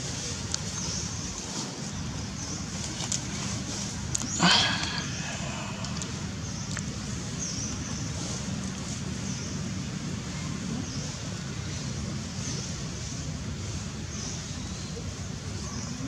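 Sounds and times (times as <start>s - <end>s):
even hiss: 4.3s - 6.7s.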